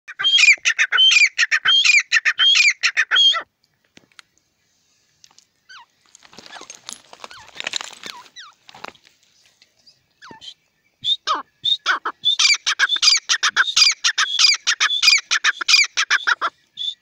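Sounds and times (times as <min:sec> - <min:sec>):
francolin calling: 0:00.1 - 0:03.5, 0:05.6 - 0:06.7, 0:09.8 - 0:17.0
scuffling noise: 0:06.0 - 0:09.4.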